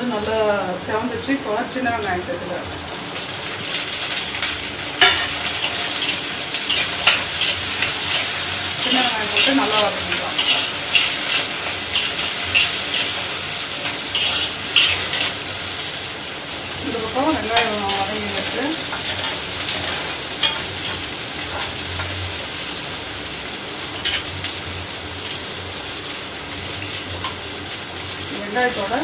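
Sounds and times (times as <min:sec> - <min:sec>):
onions sizzling in hot oil: 0:00.0 - 0:29.0
metal spoon clicking against pan: 0:18.9 - 0:22.1.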